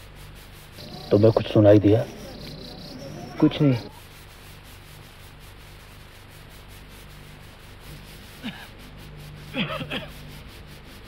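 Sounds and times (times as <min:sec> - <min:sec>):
faint steady hiss: 0:00.0 - 0:11.0
man coughing muffled: 0:08.4 - 0:08.7, 0:09.5 - 0:10.2.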